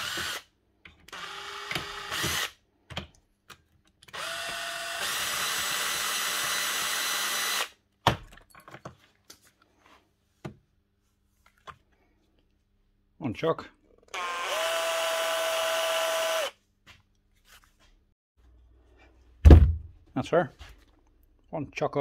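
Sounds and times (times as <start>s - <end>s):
cordless drill motor whining: 0.0s - 0.4s, 1.1s - 2.6s, 4.1s - 7.7s, 14.1s - 16.5s.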